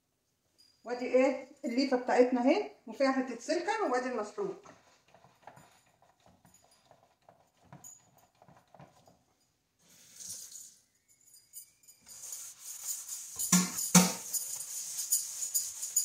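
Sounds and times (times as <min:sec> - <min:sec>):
sponge scrubbing steel sink: 0:12.1 - 0:16.0.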